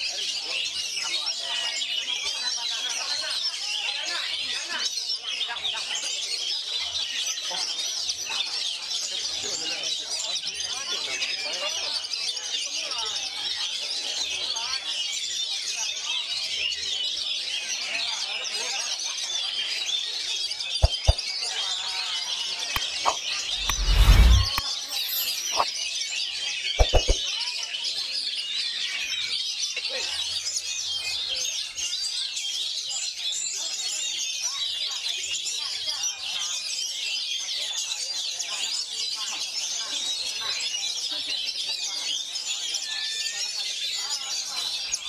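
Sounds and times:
birds singing and chirping: 0.0s - 45.0s
sharp clicks: 20.8s - 21.2s, 22.8s - 25.6s, 26.8s - 27.2s
brief low rumble: 23.0s - 25.6s.

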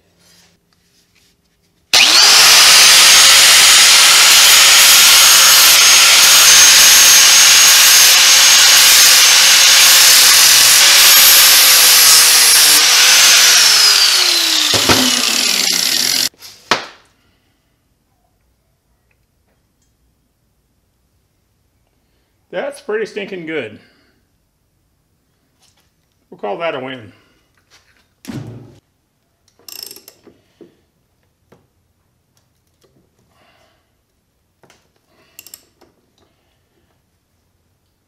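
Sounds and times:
angle grinder grinding metal: 2.0s - 16.3s.

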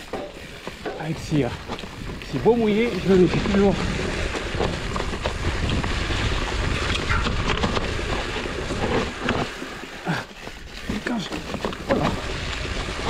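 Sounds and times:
wind buffeting the microphone: 0.0s - 9.5s, 10.5s - 13.0s
bike clicks and rattles: 0.0s - 13.0s
bike tyre noise: 0.0s - 13.0s.

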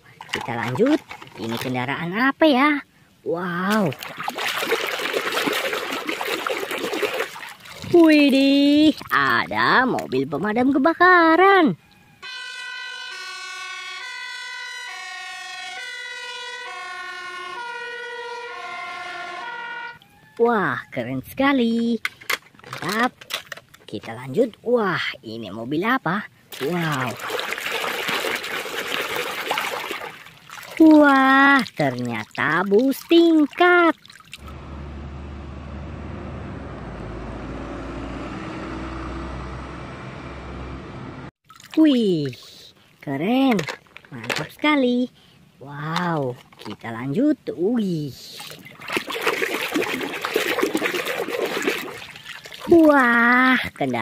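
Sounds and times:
fire engine two-tone siren: 11.8s - 21.0s
traffic noise: 34.4s - 41.3s
bus engine humming: 34.4s - 41.4s.

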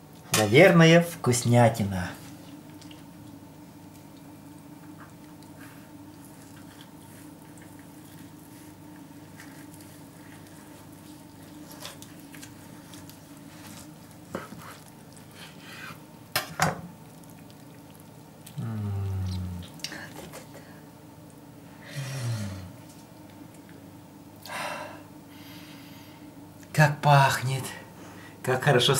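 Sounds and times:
knife cutting crackly meat: 6.3s - 16.0s
man humming: 18.5s - 20.4s, 21.9s - 22.8s.

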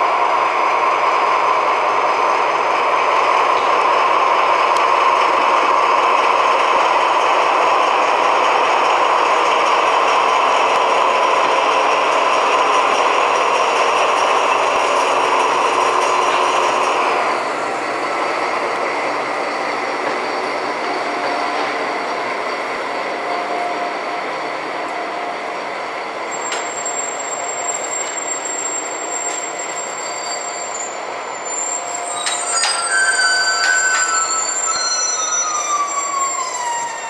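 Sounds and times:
diesel locomotive engine: 0.0s - 37.0s
wheels rumbling on rail: 0.0s - 37.0s
wheels squealing on track: 26.3s - 37.0s.

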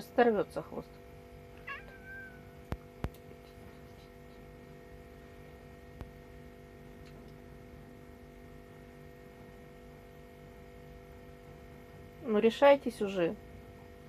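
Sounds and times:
room tone hum: 0.0s - 14.0s
cat mewing: 1.6s - 2.6s.

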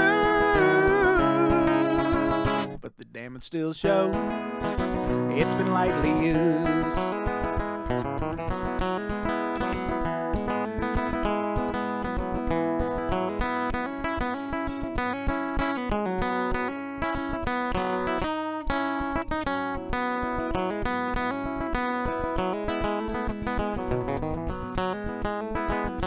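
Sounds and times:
acoustic guitar picked and strummed: 0.0s - 26.0s.

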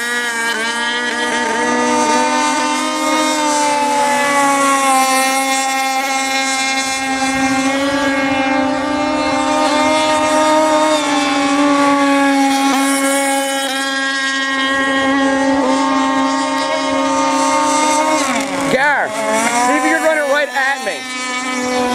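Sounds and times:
model speedboat engine buzzing: 0.0s - 21.9s.

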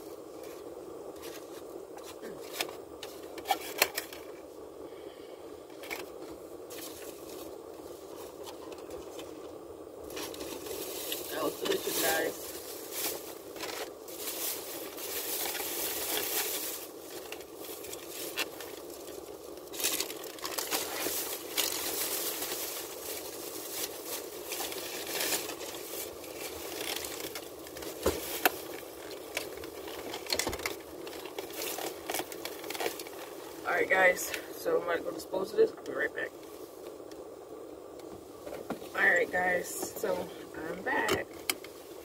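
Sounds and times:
plastic bag crinkling: 10.1s - 33.6s.

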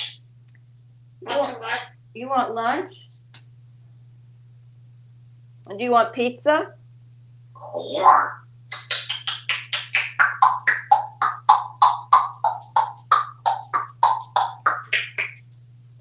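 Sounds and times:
parrot clicking calls: 7.8s - 15.4s.

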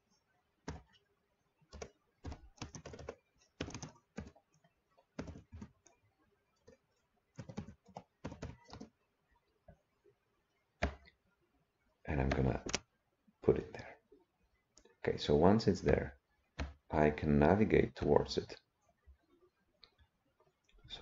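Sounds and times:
computer keyboard typing: 0.6s - 1.0s, 1.7s - 6.0s, 6.6s - 9.0s.

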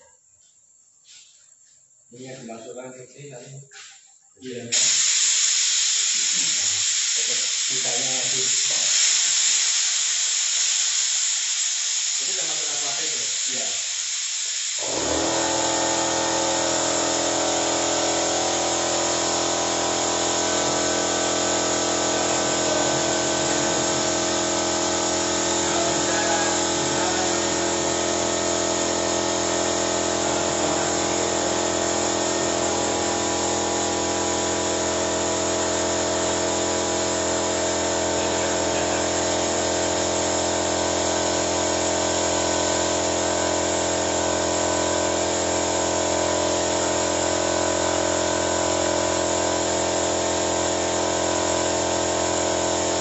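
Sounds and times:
air compressor humming and whining: 3.7s - 53.0s.

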